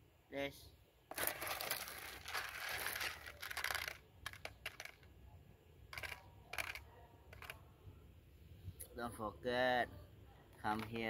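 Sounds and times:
rustling on foam tray: 1.1s - 3.9s
cat crunching dry kibble: 1.1s - 4.8s.

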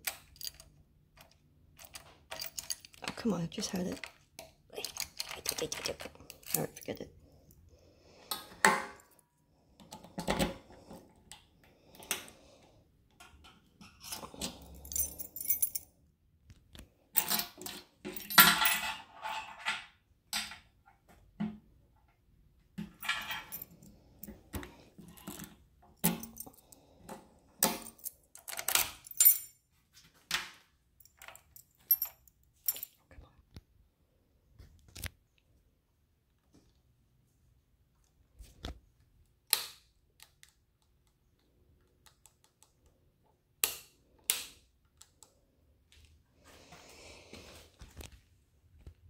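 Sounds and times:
key ring jangling: 1.8s - 3.0s, 14.3s - 15.9s, 27.8s - 29.5s.

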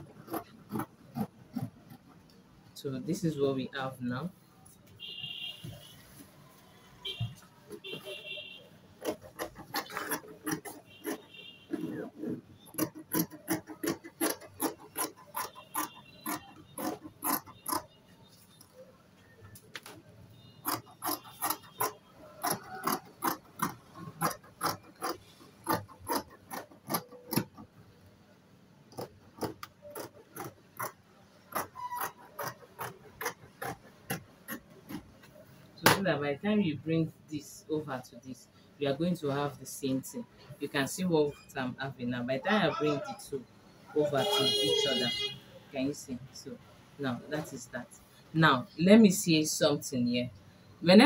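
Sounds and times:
shears snipping fabric: 0.0s - 2.1s, 9.0s - 17.9s, 20.6s - 27.6s, 29.0s - 35.1s.

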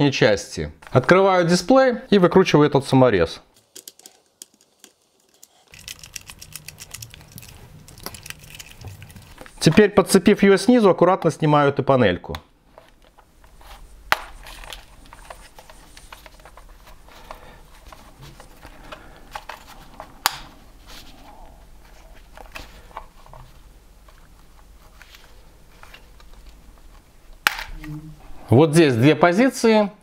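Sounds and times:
plastic clicks and handling rustle: 3.6s - 9.8s, 12.7s - 20.5s
sharp plastic snaps: 27.4s - 27.9s.

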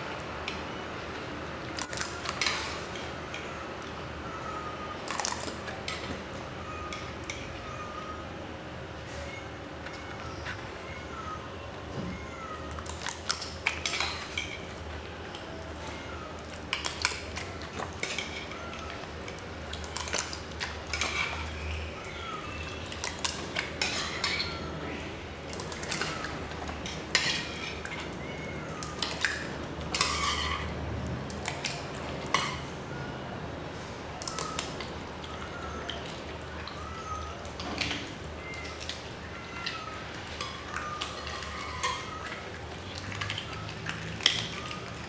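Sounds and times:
metal bowl clinking and scraping: 16.8s - 19.0s, 19.9s - 21.7s, 22.9s - 24.7s, 25.5s - 28.2s, 28.8s - 30.7s, 31.3s - 32.7s, 40.3s - 45.0s.

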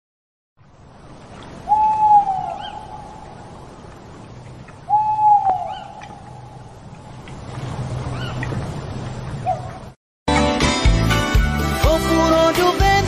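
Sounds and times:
owl hooting: 1.7s - 3.3s, 4.9s - 6.7s.

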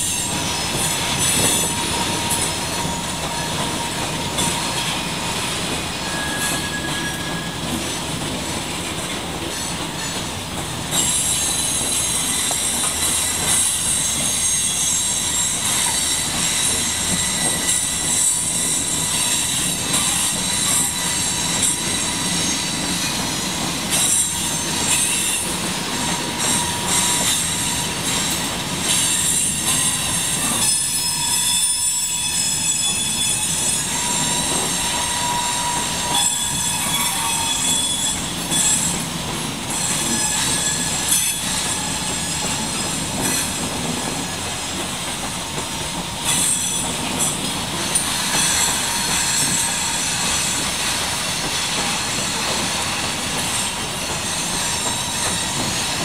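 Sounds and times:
high-pitched wheel squeal: 0.0s - 7.7s, 11.0s - 23.2s, 23.9s - 39.1s, 39.7s - 43.6s
freight train rumbling past: 0.0s - 56.0s
train wheel clack: 0.0s - 56.0s.

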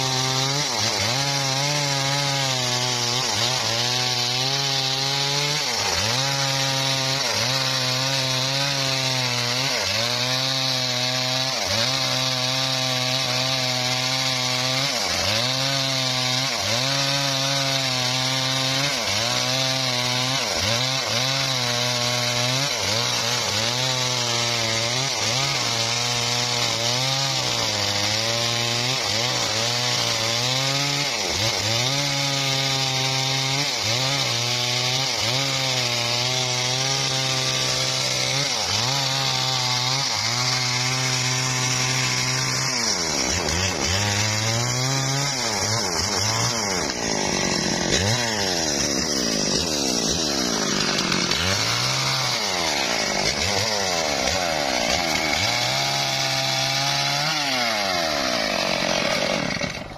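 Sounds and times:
saw engine labouring: 0.0s - 59.9s.

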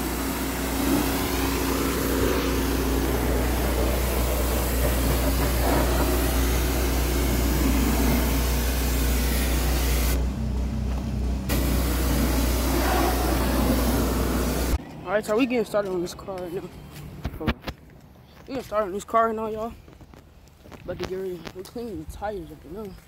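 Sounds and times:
pressure washer spray hissing: 0.0s - 10.2s, 11.5s - 14.8s
machine humming: 0.0s - 14.8s.

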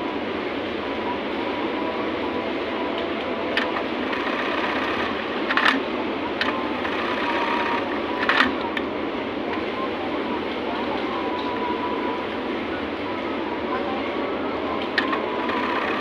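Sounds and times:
industrial sewing machines running: 3.4s - 8.6s, 14.9s - 16.0s.

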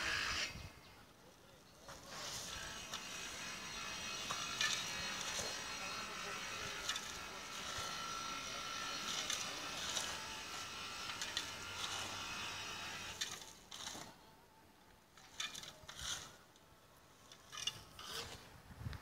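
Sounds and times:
shovels scraping concrete and gravel: 1.8s - 14.3s, 15.1s - 18.6s
steady mechanical hum: 2.2s - 14.2s.

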